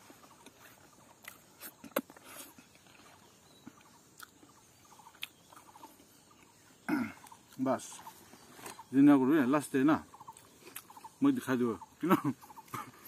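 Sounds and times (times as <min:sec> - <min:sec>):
quiet chewing: 0:00.0 - 0:08.9, 0:10.1 - 0:11.2.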